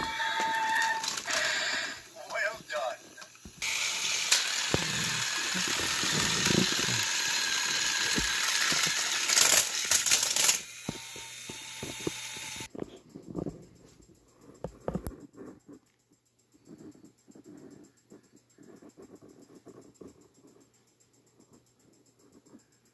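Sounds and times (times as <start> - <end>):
toy trains whirring on track: 0.0 - 12.8.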